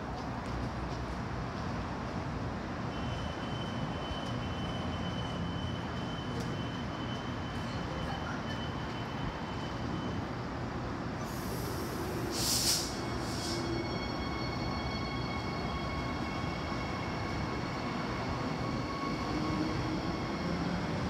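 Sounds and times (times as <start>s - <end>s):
train rumble: 0.0s - 21.0s
electric whine of train: 2.9s - 21.0s
loud hiss of air: 11.2s - 13.8s.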